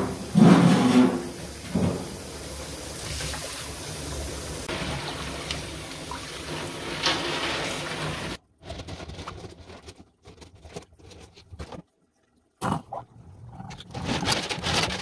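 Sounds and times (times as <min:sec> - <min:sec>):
water running into a sink: 0:00.0 - 0:08.4.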